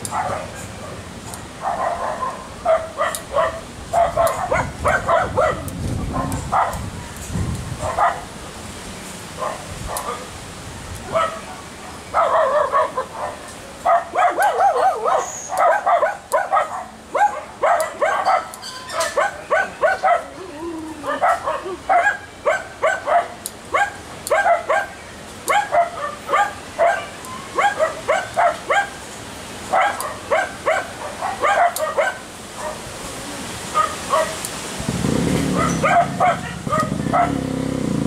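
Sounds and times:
dog yapping: 1.6 - 6.8, 12.2 - 20.3, 21.0 - 29.0, 29.7 - 32.8, 33.8 - 34.4, 35.5 - 37.4.

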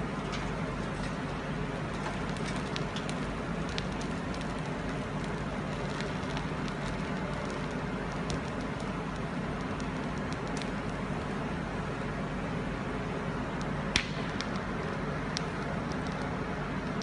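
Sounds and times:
machinery hum and hiss: 0.0 - 17.0
light mechanical clicks: 13.6 - 17.0.

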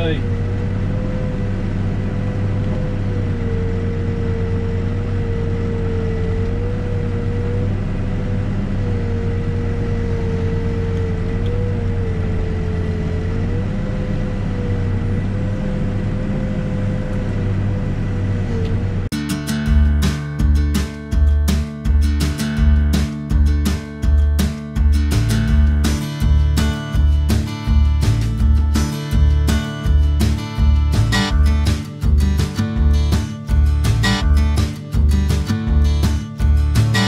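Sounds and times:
diesel engine running: 0.0 - 37.0
high whine: 19.1 - 37.0.

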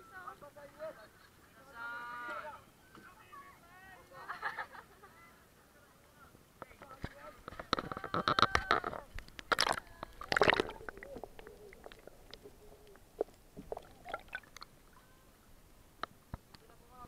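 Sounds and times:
faint underwater clicks: 6.6 - 15.2, 16.0 - 16.7
water splashing over camera: 7.7 - 15.0
muffled underwater sound: 7.9 - 14.6.

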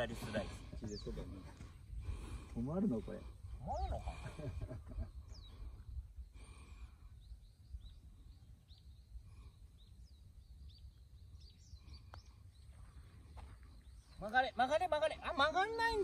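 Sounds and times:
low wind rumble: 0.0 - 14.1
small birds chirping: 0.0 - 16.0.

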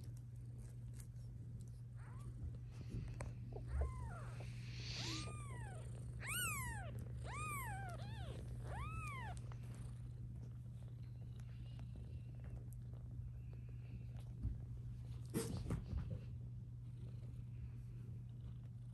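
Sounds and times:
newborn kittens mewing: 2.0 - 9.8.

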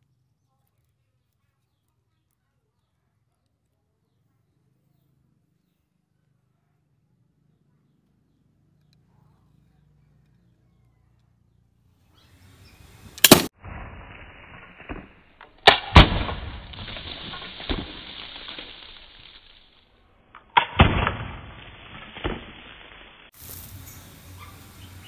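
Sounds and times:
can being hit and bursting: 13.2 - 19.8, 20.4 - 24.1.

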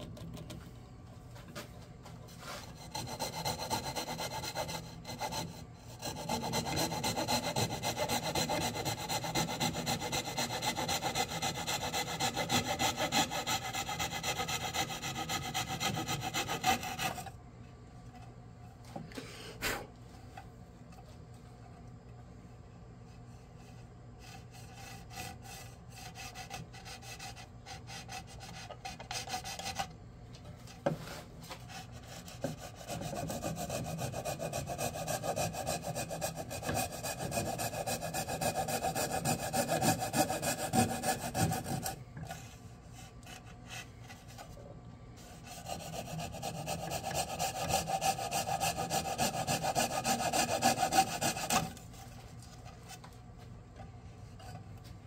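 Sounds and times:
hand saw cutting wood: 2.4 - 17.3, 24.3 - 29.9, 31.5 - 42.4, 45.4 - 51.8.

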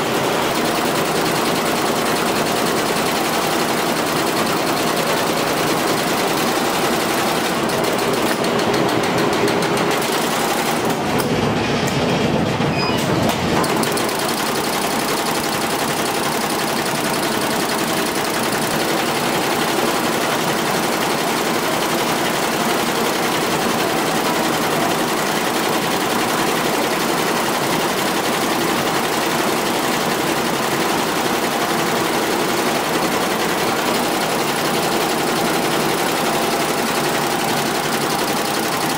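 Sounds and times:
embroidery machine clattering: 0.0 - 38.9.

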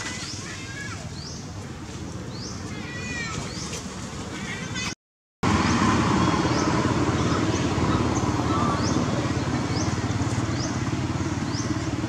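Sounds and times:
low engine drone: 5.4 - 12.0.

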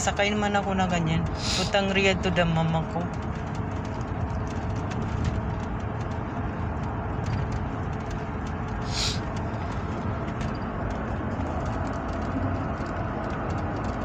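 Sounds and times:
car tyre and engine rumble: 0.0 - 14.0
brief hiss: 8.9 - 9.2.

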